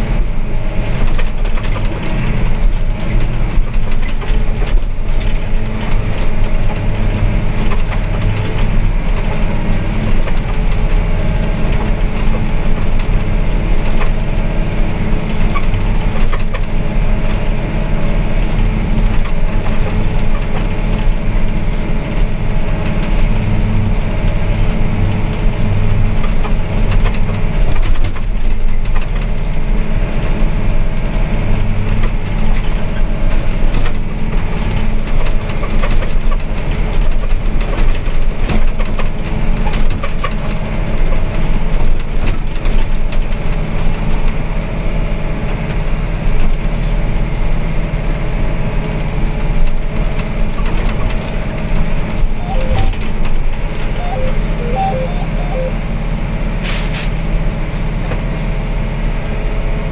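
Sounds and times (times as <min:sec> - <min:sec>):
sprayer engine drone: 0:00.0 - 0:28.5, 0:50.1 - 0:59.2.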